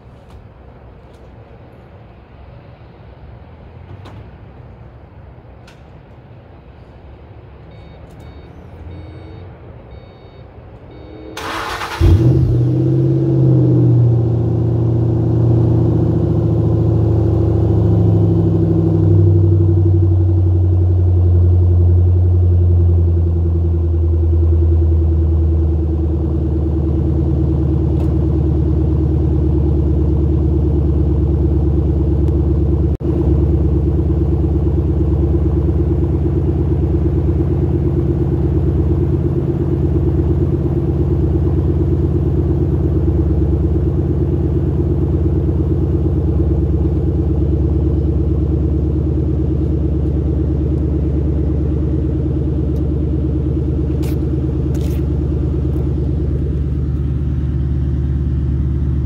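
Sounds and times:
engine revving and idling: 10.9 - 59.0.

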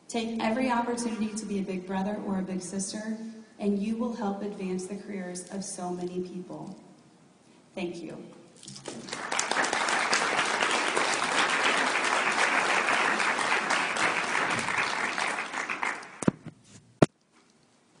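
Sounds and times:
audience applauding: 8.8 - 16.3.

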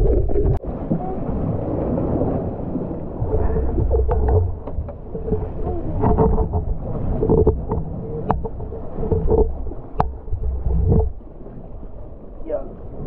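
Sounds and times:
steady low rumble: 0.0 - 13.0
gear knocking in wooden boat: 3.2 - 11.2.

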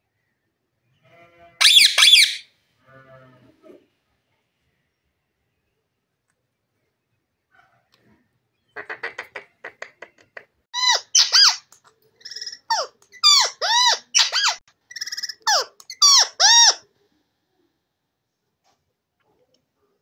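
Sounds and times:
parakeet clicking chatter: 1.6 - 2.4, 8.8 - 16.8
parakeet loud calls: 1.6 - 2.4, 12.2 - 16.8.

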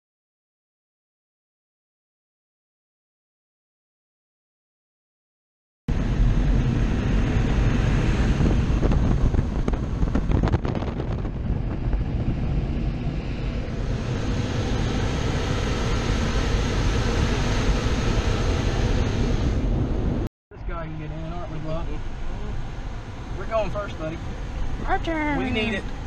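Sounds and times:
wind buffeting on microphone: 5.9 - 20.3
air dryer blowers blasting: 13.2 - 20.3.

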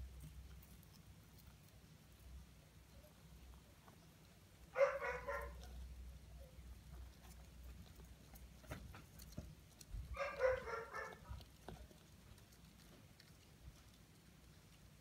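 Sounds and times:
dog barking: 4.7 - 5.7, 10.1 - 11.5.

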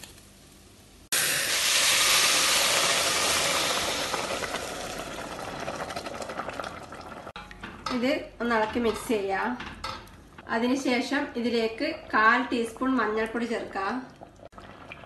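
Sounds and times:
sizzling hiss of steam: 1.0 - 4.1
water poured into hot pot: 1.1 - 7.3.

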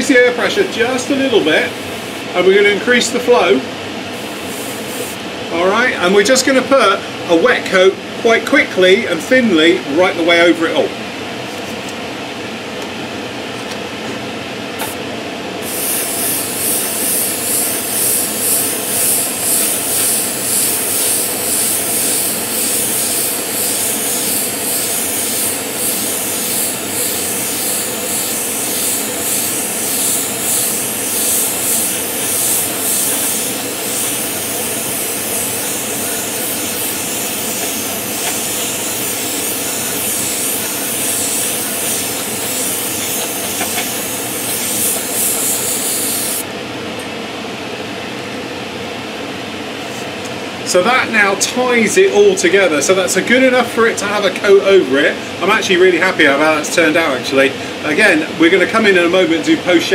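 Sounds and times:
air compressor hum: 0.0 - 8.3, 10.7 - 59.2
airbrush spraying hiss: 1.4 - 2.3, 4.2 - 5.2, 15.6 - 46.5.

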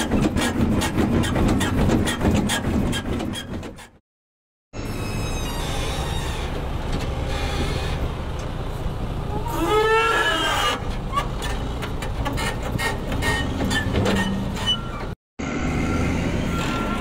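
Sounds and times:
diesel engine under load: 0.0 - 4.0, 4.8 - 17.0
hydraulic whine: 4.8 - 10.9.

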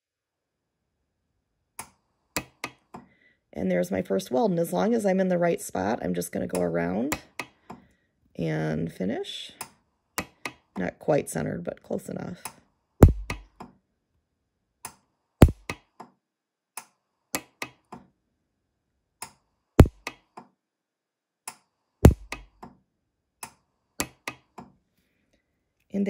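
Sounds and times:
welder snapping: 22.0 - 22.6.

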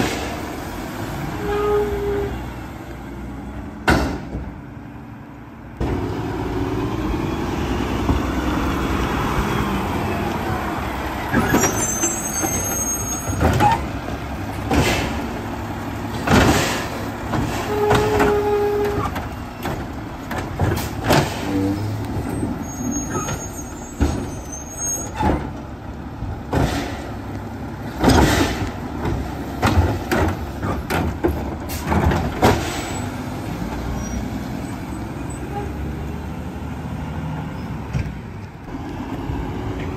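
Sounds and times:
clunks and bangs: 3.8 - 4.6, 11.3 - 24.4, 25.0 - 33.2
high squeals: 11.3 - 13.8, 22.4 - 25.3.

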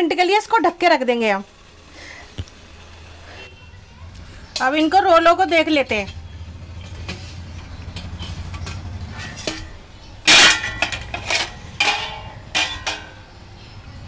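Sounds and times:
metal lid clanging on pot rim: 8.0 - 13.2.

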